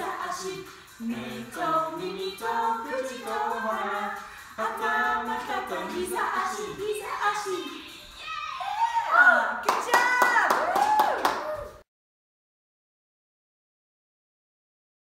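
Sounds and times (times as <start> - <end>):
group singing unaccompanied: 0.0 - 9.1.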